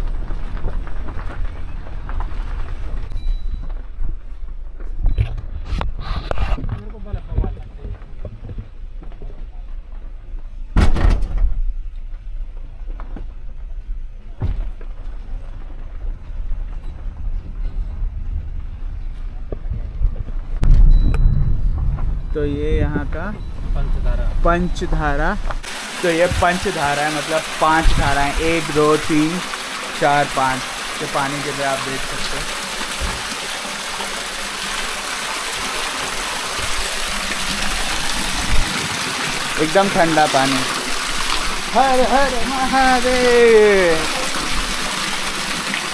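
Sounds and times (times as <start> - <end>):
vehicle rumbling on rough road: 0.0 - 25.7
low thump: 20.6 - 23.7
spring water pouring: 25.6 - 45.9.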